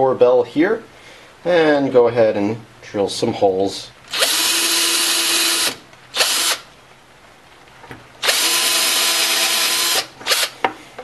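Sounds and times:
power drill boring into wood: 0:04.1 - 0:06.6, 0:08.2 - 0:10.6.

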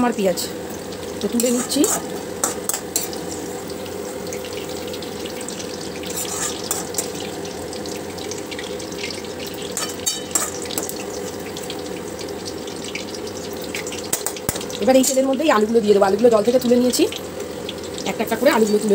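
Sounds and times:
onions sizzling in hot oil: 0:00.0 - 0:18.9
utensil clinking against pan: 0:09.8 - 0:10.9.

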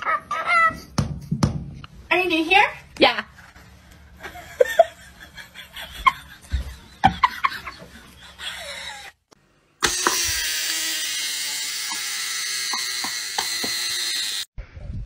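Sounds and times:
toy motor buzzing whir: 0:09.8 - 0:14.5.

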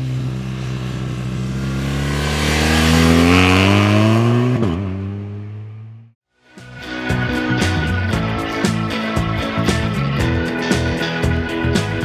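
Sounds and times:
motorcycle engine accelerating past: 0:00.0 - 0:06.1.

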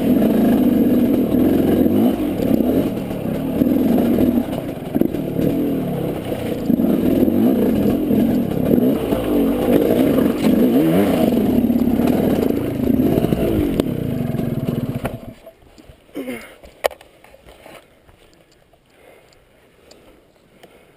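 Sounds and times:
dirt bike engine revving: 0:00.0 - 0:15.4
bike clatter and scraping: 0:00.0 - 0:15.5.

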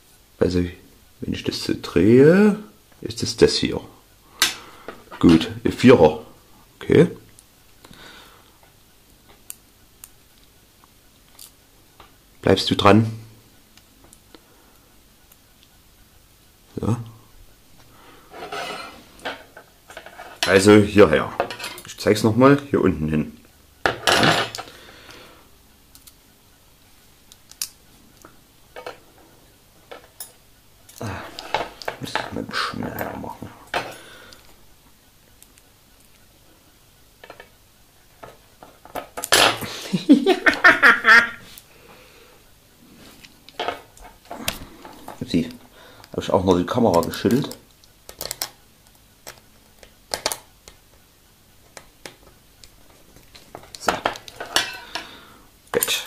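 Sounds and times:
small plastic parts clattering: 0:46.9 - 0:50.5
light clicks of model kit pieces: 0:46.9 - 0:50.8.

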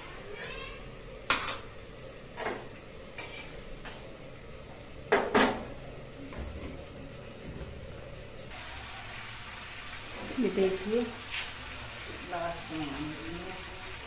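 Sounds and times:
metal cookware clinking: 0:03.2 - 0:03.6.

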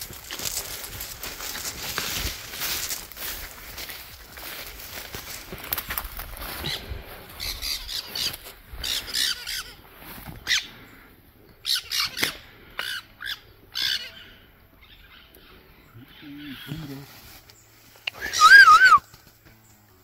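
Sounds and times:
birds squawking: 0:06.4 - 0:17.1, 0:18.0 - 0:19.2.

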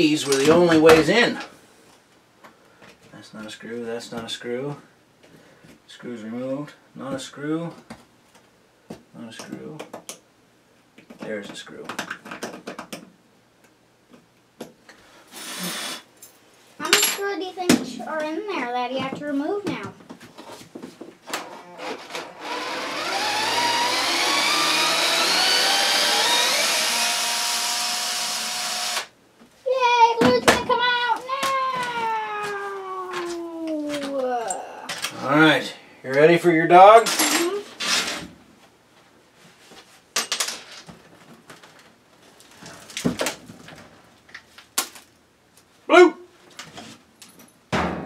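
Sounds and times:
cordless drill whining: 0:15.4 - 0:16.0, 0:21.4 - 0:29.1
dull thud: 0:47.7 - 0:48.0.

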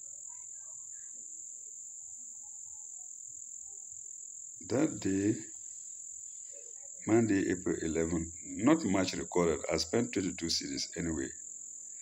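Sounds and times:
crickets trilling: 0:00.0 - 0:12.0
man's voice: 0:04.6 - 0:05.5, 0:07.1 - 0:11.3.

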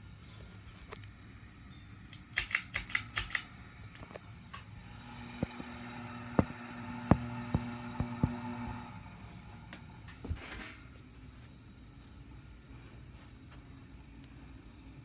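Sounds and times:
fan motor humming: 0:00.0 - 0:15.0.

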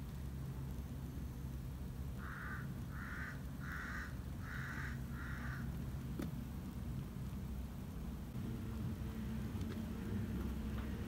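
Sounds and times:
low hum: 0:00.0 - 0:11.0
crow cawing: 0:02.2 - 0:05.7.

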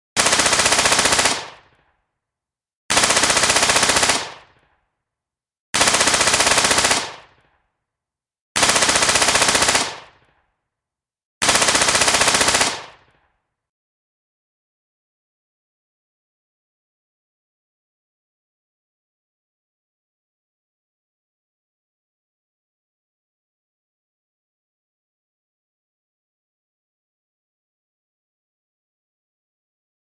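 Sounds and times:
automatic gunfire bursts: 0:00.2 - 0:01.8, 0:02.9 - 0:04.6, 0:05.8 - 0:07.4, 0:08.6 - 0:10.2, 0:11.4 - 0:13.1.

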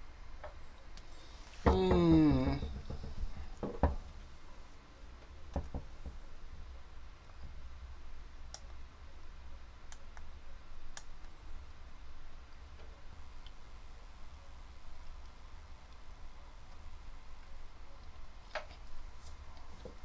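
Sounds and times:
low steady hum: 0:00.0 - 0:20.0
computer mouse clicking: 0:08.5 - 0:08.8, 0:09.9 - 0:10.3, 0:10.9 - 0:11.3.

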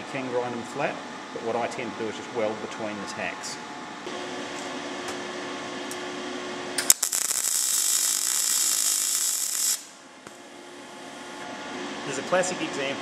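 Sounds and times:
welder arc crackling: 0:06.8 - 0:10.0.

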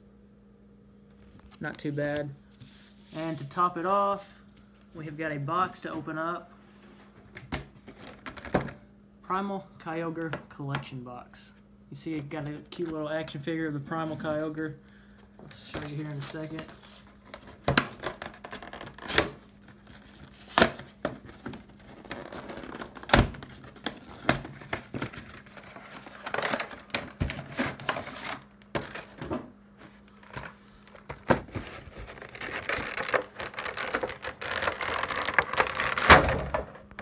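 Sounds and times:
cardboard and plastic crinkling: 0:15.5 - 0:37.0.

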